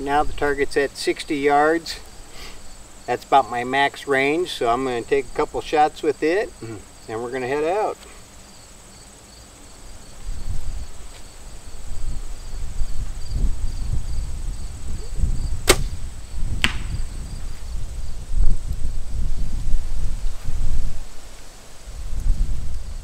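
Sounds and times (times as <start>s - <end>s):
crickets chirping: 0.0s - 23.0s
wind rumble on microphone: 10.2s - 23.0s
arrow striking target: 15.6s - 16.0s, 16.6s - 17.0s
bowstring releasing with sharp crack: 15.6s - 16.0s, 16.6s - 17.0s.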